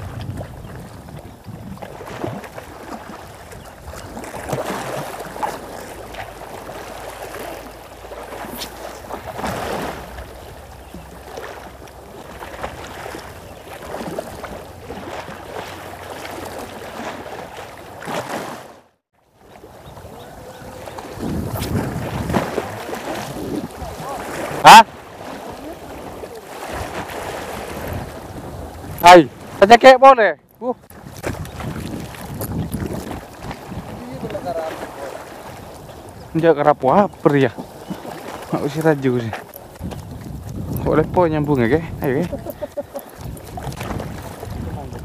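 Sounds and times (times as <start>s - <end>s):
low wind rumble on microphone: 0.0s - 4.2s, 19.6s - 24.6s, 26.7s - 29.6s, 30.9s - 34.6s, 39.7s - 45.0s
small waves sloshing against stone: 37.0s - 40.7s.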